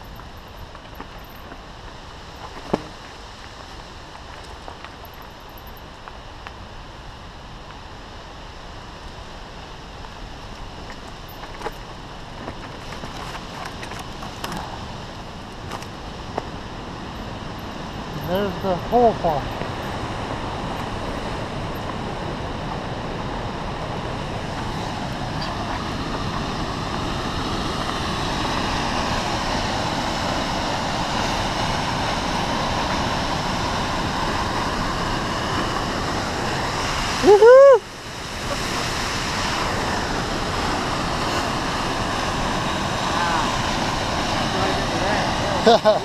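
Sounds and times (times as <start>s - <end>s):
waterfall rushing: 16.1s - 46.0s.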